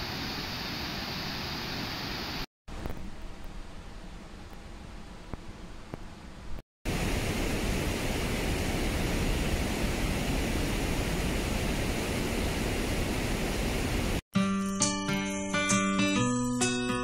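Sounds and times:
river water rushing over rapids: 0:06.9 - 0:14.2.

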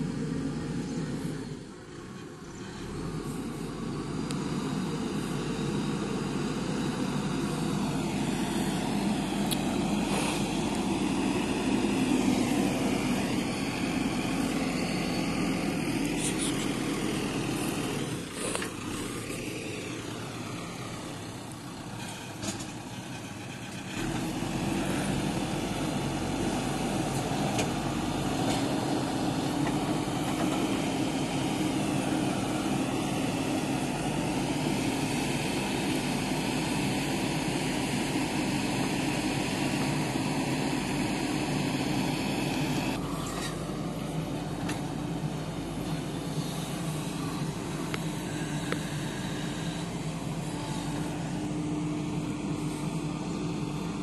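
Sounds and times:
diesel engine running: 0:00.0 - 0:54.0
backhoe digging into soil: 0:09.4 - 0:11.1, 0:17.4 - 0:19.5.

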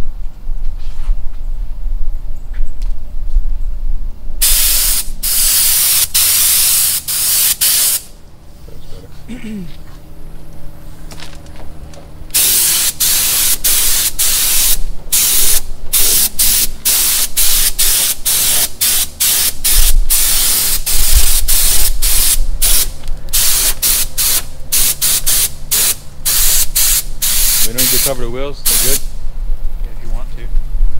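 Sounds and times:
paint spray gun hissing: 0:04.4 - 0:08.2, 0:12.3 - 0:29.2.

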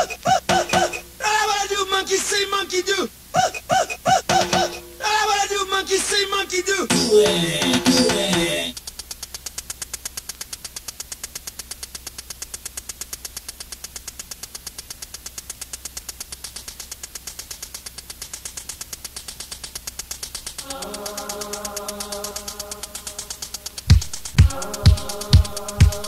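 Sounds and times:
rapid electronic ticking: 0:00.0 - 0:26.0
steady low hum: 0:00.0 - 0:26.0
sustained synth chords: 0:04.4 - 0:05.6, 0:20.6 - 0:26.0.

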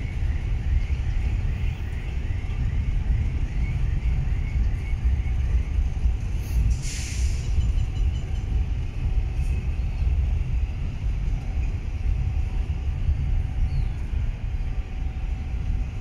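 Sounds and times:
train rumbling past: 0:00.0 - 0:16.0
short hiss: 0:06.7 - 0:07.4.

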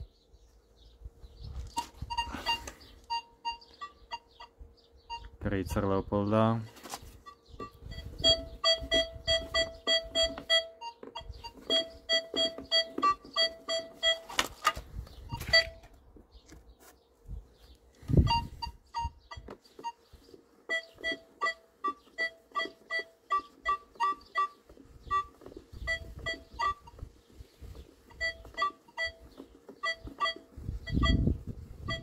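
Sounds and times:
metal detector beeps: 0:01.7 - 0:05.4, 0:07.0 - 0:16.0, 0:18.0 - 0:27.1, 0:27.7 - 0:32.0.

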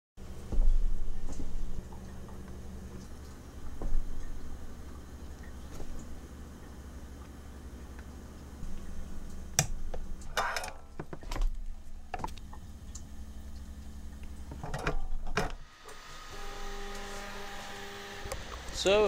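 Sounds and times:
low steady hum: 0:00.2 - 0:19.0
printer motors humming: 0:15.6 - 0:19.0.

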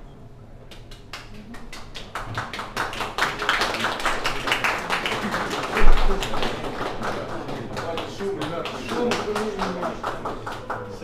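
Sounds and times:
audience applauding: 0:00.7 - 0:11.0.

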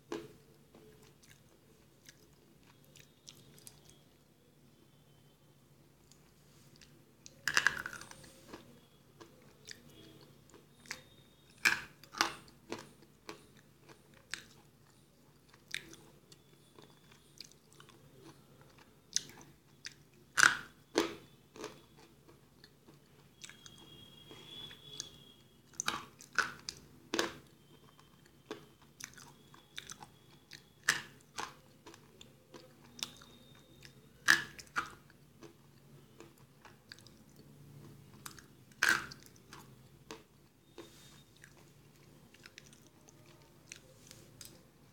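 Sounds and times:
slate pencils crunching in mouth: 0:06.1 - 0:22.7, 0:25.7 - 0:44.6.

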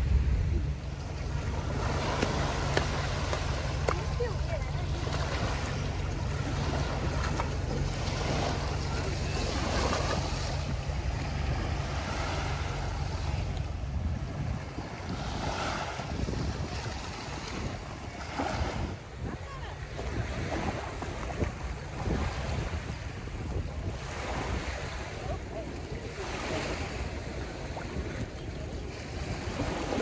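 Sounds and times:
small waves washing onto beach: 0:00.0 - 0:30.0
wind buffeting microphone: 0:00.0 - 0:30.0.

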